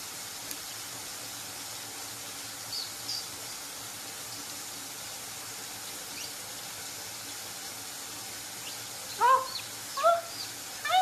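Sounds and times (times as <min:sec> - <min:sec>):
running water tap hiss: 0:00.0 - 0:11.0
short high calls: 0:09.2 - 0:11.0.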